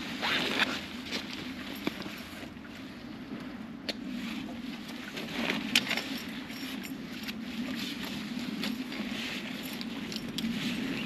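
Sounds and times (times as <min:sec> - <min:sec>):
nylon fabric rustling: 0:00.0 - 0:02.5.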